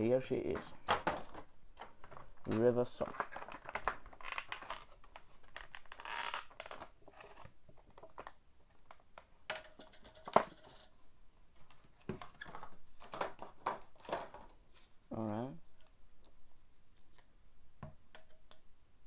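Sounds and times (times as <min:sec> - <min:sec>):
plastic packaging rustling and clicking: 0:00.5 - 0:10.9, 0:11.6 - 0:14.6.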